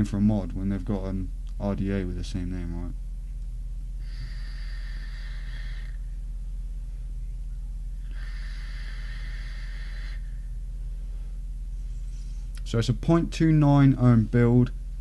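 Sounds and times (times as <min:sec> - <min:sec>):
steady low hum: 0:00.0 - 0:15.0
air hissing through vaporizer: 0:04.0 - 0:06.0, 0:08.0 - 0:10.4.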